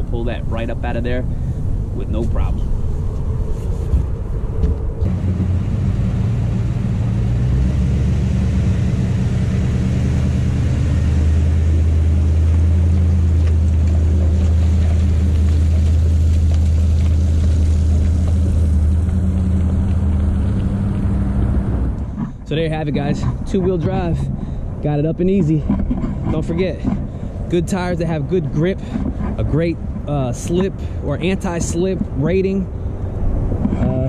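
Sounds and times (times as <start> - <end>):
truck engine humming: 0.0 - 34.0.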